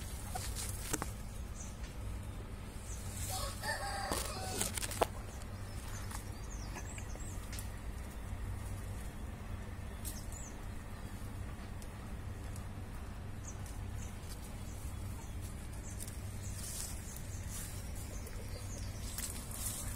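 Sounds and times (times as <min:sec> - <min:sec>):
steady low hum: 0:00.0 - 0:19.9
rooster crowing: 0:03.2 - 0:04.8.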